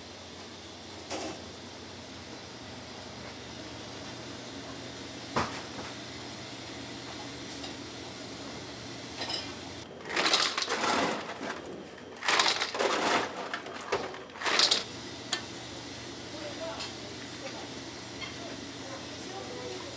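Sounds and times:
pot of noodles boiling: 0:00.0 - 0:19.9
ice cubes rattling in metal bowl: 0:10.0 - 0:11.4, 0:12.2 - 0:14.9.

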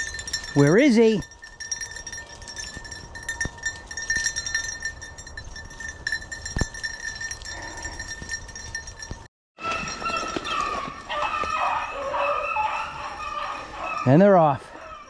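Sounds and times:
small bell jingling: 0:00.0 - 0:10.7.

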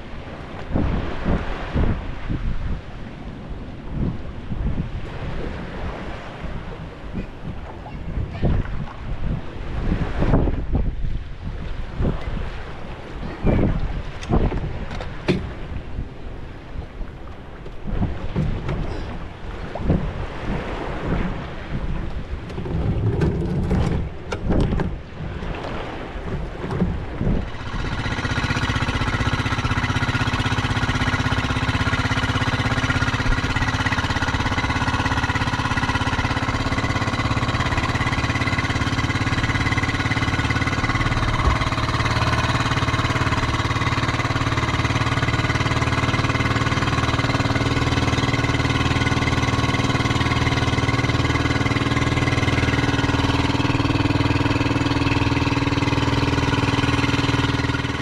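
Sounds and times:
small boat engine droning: 0:00.0 - 0:58.0.

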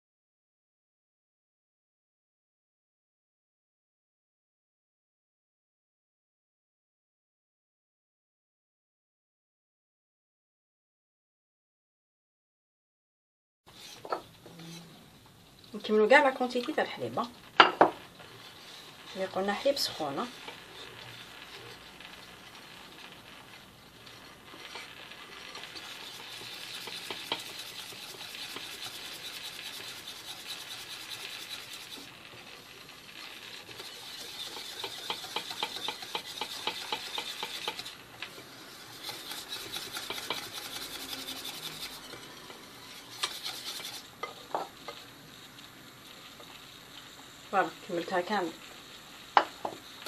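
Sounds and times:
utensil stirring in glass bowl: 0:18.4 - 0:22.2, 0:24.5 - 0:32.2, 0:33.1 - 0:45.0.

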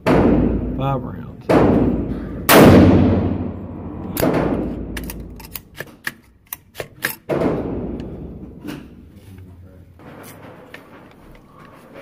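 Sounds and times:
rifle shots echoing indoors: 0:00.0 - 0:00.8, 0:01.4 - 0:08.6.

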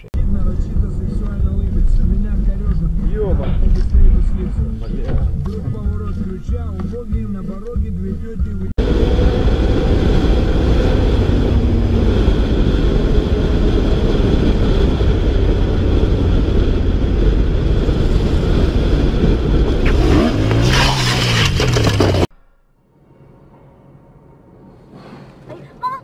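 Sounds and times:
wind rush on microphone: 0:08.8 - 0:20.6.

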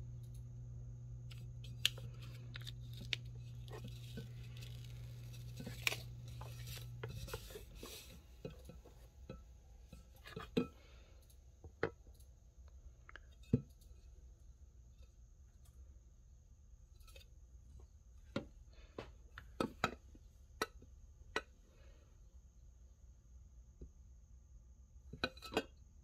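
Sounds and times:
decal rubbing and crinkling: 0:01.7 - 0:09.2.

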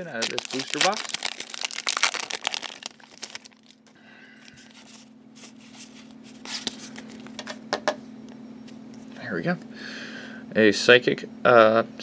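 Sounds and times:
foil wrapper crinkling: 0:00.0 - 0:07.4.

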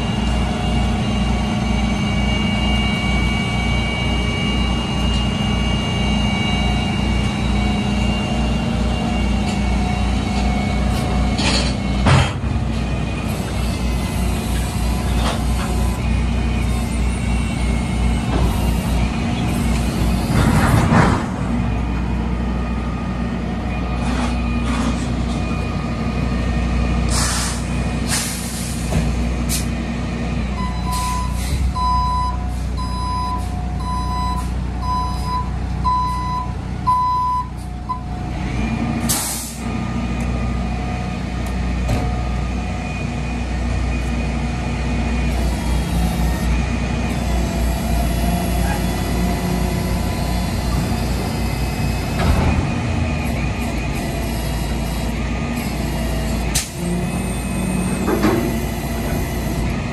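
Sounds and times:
truck engine running: 0:00.0 - 0:59.9
air brakes hissing: 0:27.1 - 0:29.8, 0:30.9 - 0:31.8, 0:39.0 - 0:39.7
backup alarm beeps: 0:30.6 - 0:38.1.

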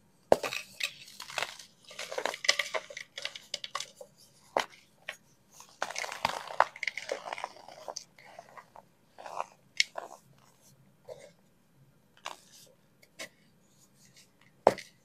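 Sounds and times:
pucks crushed with crunches: 0:00.3 - 0:08.0.

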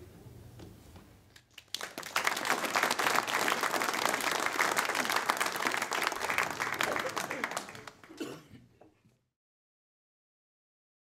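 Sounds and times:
audience applauding: 0:01.5 - 0:08.4.

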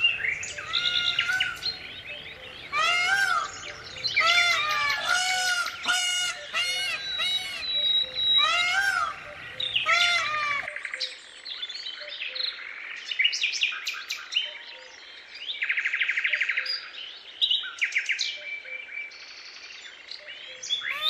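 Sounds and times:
songbirds chirping and whistling: 0:00.0 - 0:21.0.

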